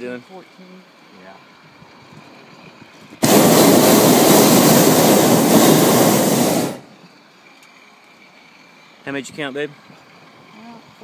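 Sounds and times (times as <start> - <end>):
propane burner blast: 3.0 - 7.1.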